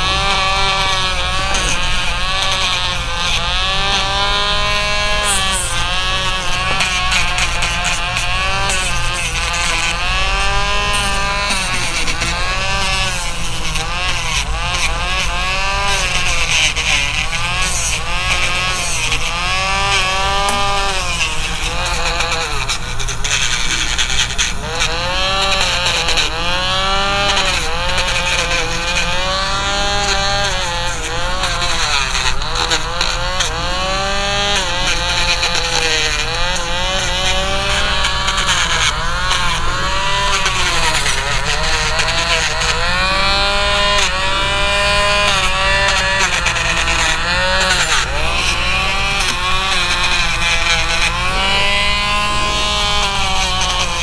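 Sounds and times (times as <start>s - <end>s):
nail grinder whining: 0.0s - 54.0s.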